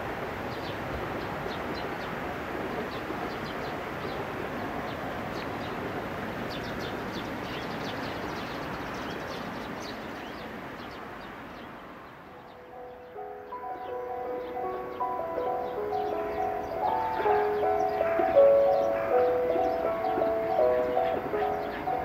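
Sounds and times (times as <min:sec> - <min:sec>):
train running: 0:00.0 - 0:22.0
small birds chirping: 0:06.5 - 0:22.0.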